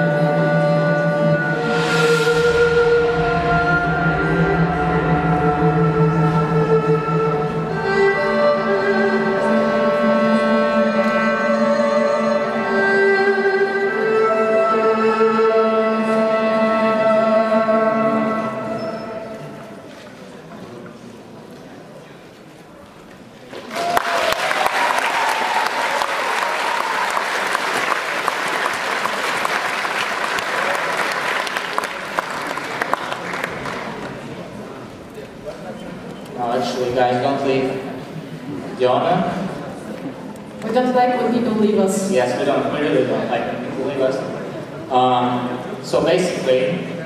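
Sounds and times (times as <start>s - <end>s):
slow bowed-string melody: 0.0s - 19.9s
audience applause: 23.5s - 34.6s.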